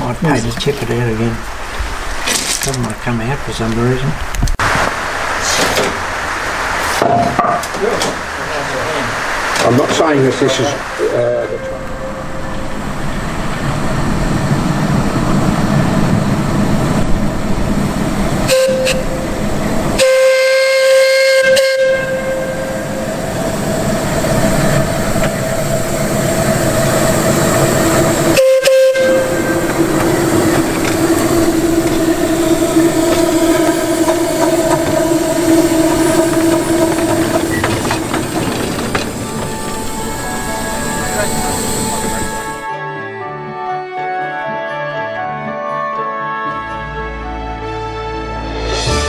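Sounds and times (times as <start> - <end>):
steam locomotive chuffing: 7.8 - 42.7
steam whistle blasts: 18.4 - 38.4.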